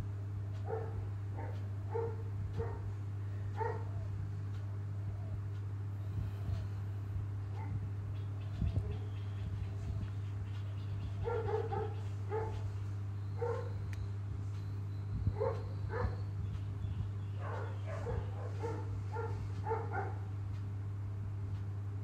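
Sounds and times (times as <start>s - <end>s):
steady low hum: 0.0s - 22.0s
dog barking: 0.6s - 3.0s, 3.6s - 4.1s, 7.5s - 7.8s, 11.2s - 12.7s, 13.4s - 13.8s, 15.4s - 16.3s, 17.4s - 20.3s.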